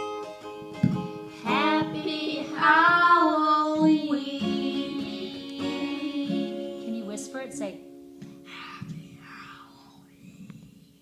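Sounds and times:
instrumental accompaniment: 0.0 - 9.4
child singing: 1.4 - 7.0.

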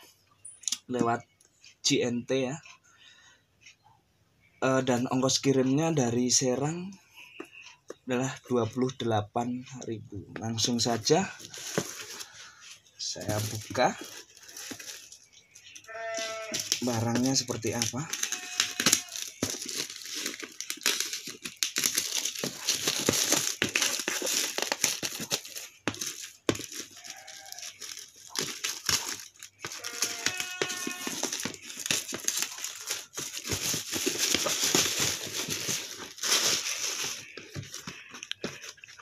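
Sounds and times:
plastic wrap crinkling: 10.6 - 39.0
plastic bag tearing: 13.2 - 15.2, 16.1 - 38.6
scissors snipping plastic: 16.2 - 38.6.

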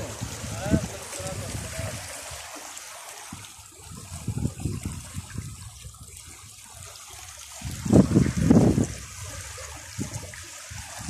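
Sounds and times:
water running and trickling: 0.0 - 11.0.

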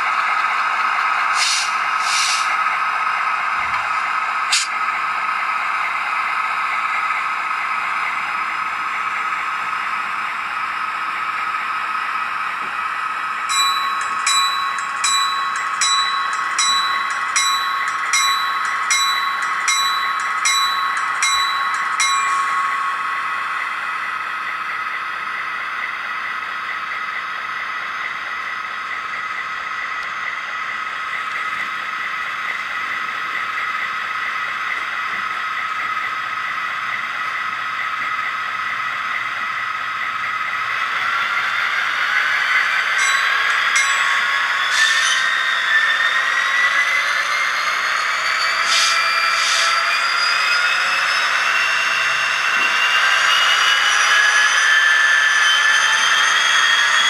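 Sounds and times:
diesel engine sound: 0.0 - 57.0
locomotive bell ringing: 11.6 - 34.6, 35.4 - 57.0.

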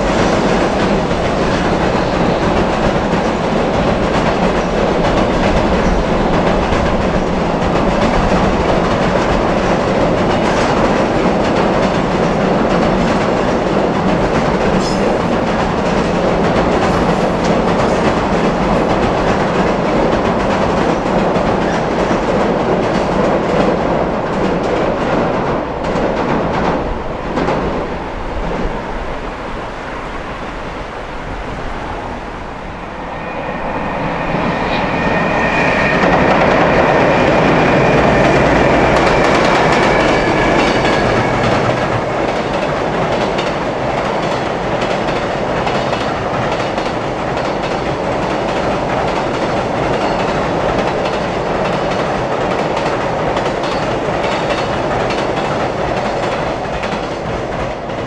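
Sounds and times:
freight train rumbling over bridge: 0.0 - 58.0
wheels clickety-clack: 38.2 - 58.0.

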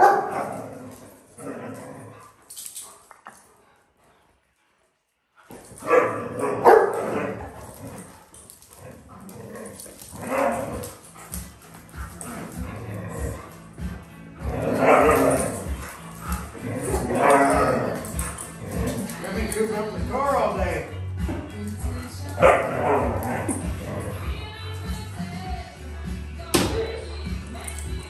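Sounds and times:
dogs growling and barking: 0.0 - 4.2, 5.4 - 20.1, 21.2 - 24.5
background music with a beat: 20.0 - 28.0.

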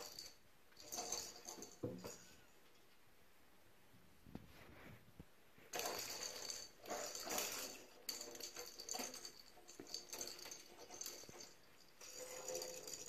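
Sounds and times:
plastic balls rattling in a bathtub: 5.7 - 13.0.

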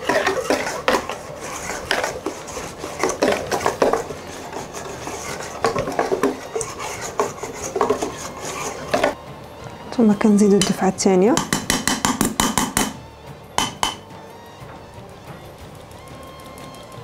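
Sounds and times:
whisk scraping a steel bowl: 0.0 - 9.2.

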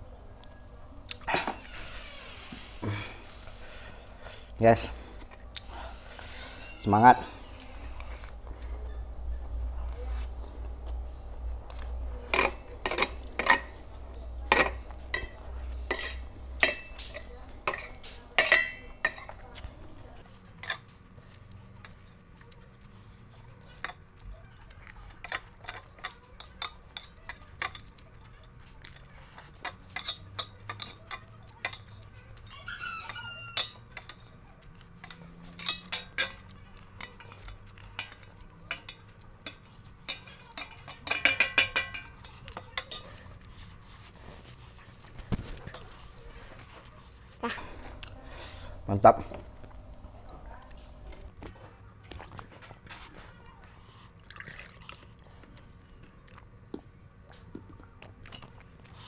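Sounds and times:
cutlery clinking on metal tray: 11.7 - 19.6, 20.6 - 21.0, 25.2 - 43.3.

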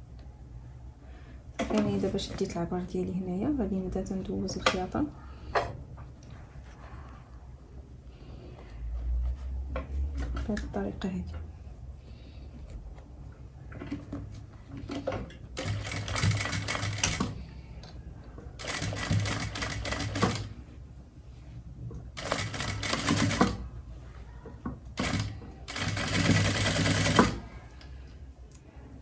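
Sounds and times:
electric sewing machine stitching: 22.2 - 23.6, 25.0 - 27.4.

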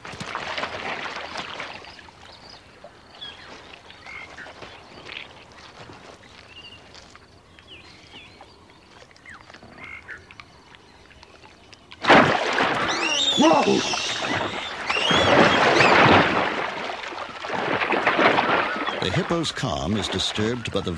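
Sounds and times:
high chirping calls of small animals: 12.9 - 16.0.

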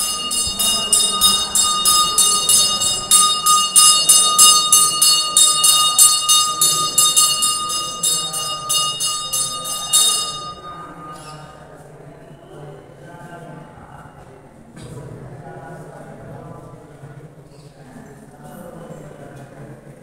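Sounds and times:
bell ringing rapidly: 0.0 - 11.6.

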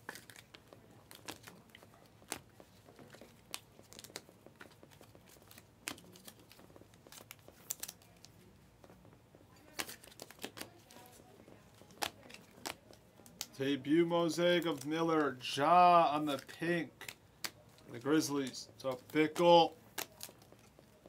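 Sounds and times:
trading cards flipped by hand: 2.2 - 8.2.

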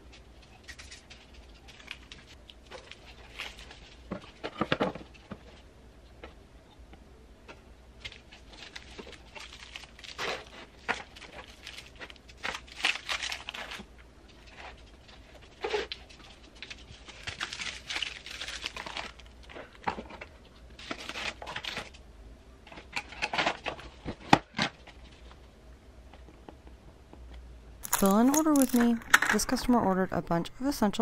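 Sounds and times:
bubble wrap crinkling: 0.1 - 5.7, 8.0 - 22.0, 27.8 - 29.6.

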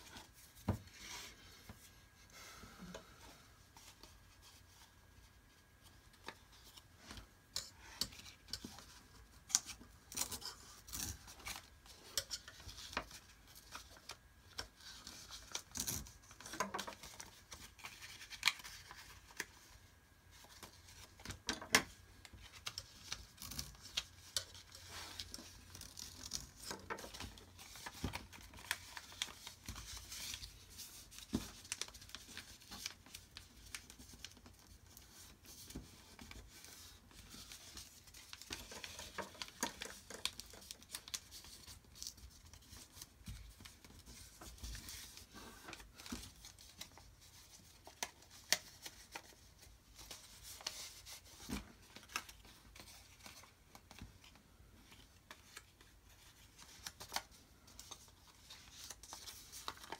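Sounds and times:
paper rustling and crinkling: 3.7 - 59.9.

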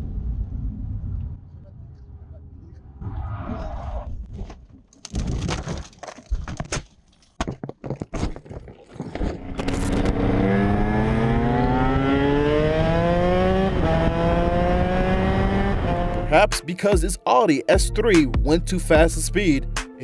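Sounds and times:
car crashing and tumbling: 4.1 - 10.2
motorcycle engine accelerating: 9.2 - 16.5.

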